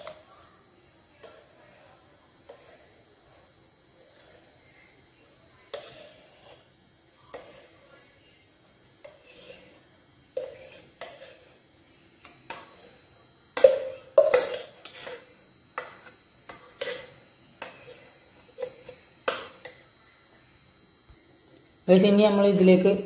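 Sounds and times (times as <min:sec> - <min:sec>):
metal spoon scraping steel vessel: 0:05.7 - 0:06.7, 0:09.0 - 0:09.8, 0:10.4 - 0:11.6, 0:13.6 - 0:19.4.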